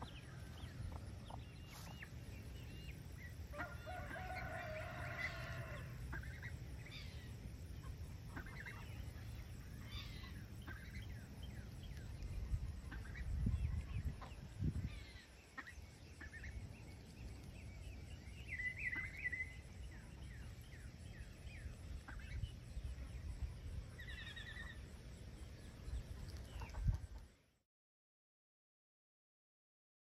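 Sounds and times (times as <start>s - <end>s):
bird chirps and calls: 17.7s - 19.7s.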